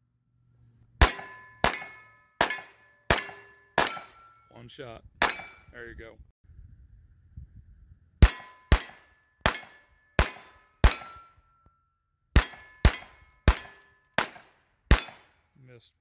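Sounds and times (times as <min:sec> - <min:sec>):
pistol shots: 0:01.0 - 0:04.3, 0:05.2 - 0:05.6, 0:08.2 - 0:11.3, 0:12.4 - 0:15.4
steel plate target ringing: 0:01.0 - 0:05.8, 0:08.2 - 0:15.4.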